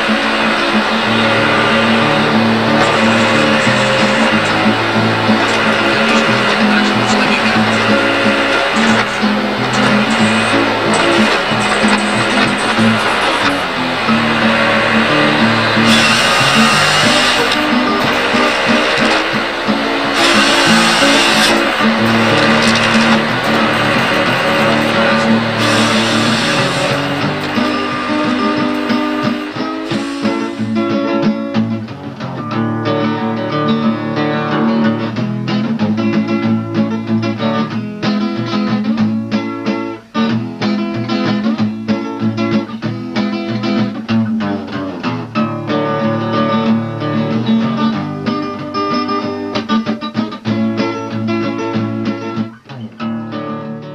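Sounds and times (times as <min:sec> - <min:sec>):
harvester head working a log: 0:00.0 - 0:30.9
acoustic guitar music: 0:00.0 - 0:53.9.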